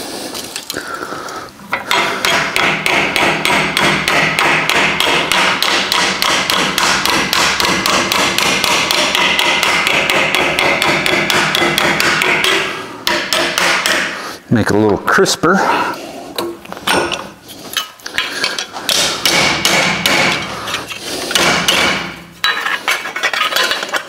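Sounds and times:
hammer striking sheet metal: 1.8s - 14.2s, 18.8s - 20.6s, 21.3s - 22.7s.

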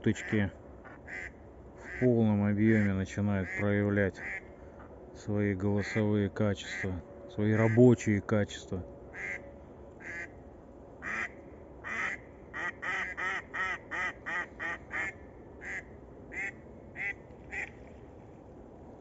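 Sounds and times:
duck quacking: 0.1s - 2.1s, 2.7s - 4.5s, 6.7s - 7.0s, 7.6s - 7.9s, 9.2s - 9.4s, 10.0s - 10.3s, 11.0s - 17.8s.

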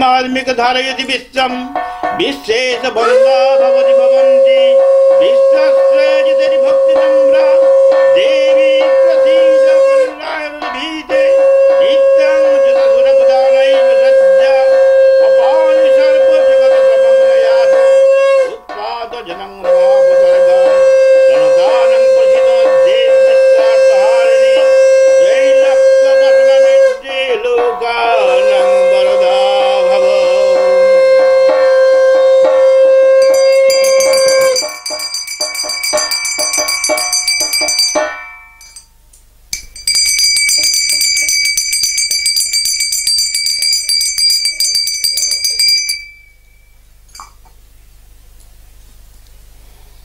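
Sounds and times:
conch shell blown: 3.0s - 18.8s, 19.6s - 27.2s, 27.8s - 38.9s
gong beaten rapidly: 6.7s - 38.9s, 39.6s - 46.3s.

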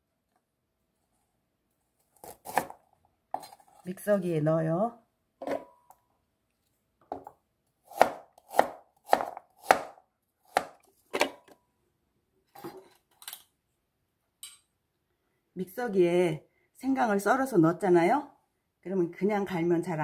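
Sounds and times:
knife chopping ginger on plastic board: 2.2s - 3.5s, 7.9s - 11.4s.

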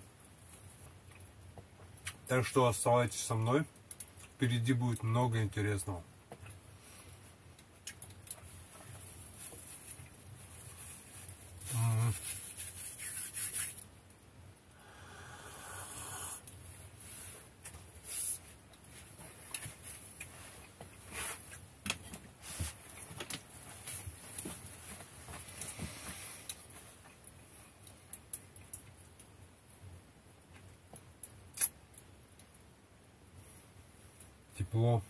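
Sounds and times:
faint clicks and crackles: 3.8s - 5.1s, 7.5s - 14.2s, 18.6s - 32.7s.

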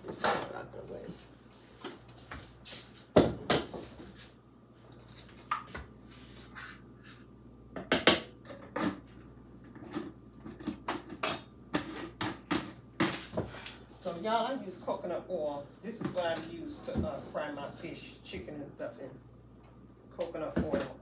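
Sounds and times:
kitchenware clinking and knocking: 10.6s - 11.6s.

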